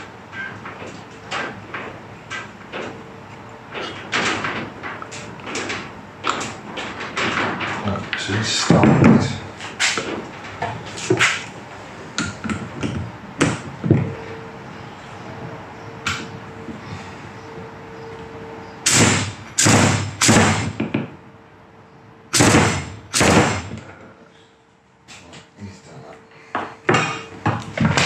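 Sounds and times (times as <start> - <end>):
clinks and knocks of parts: 3.7 - 11.5.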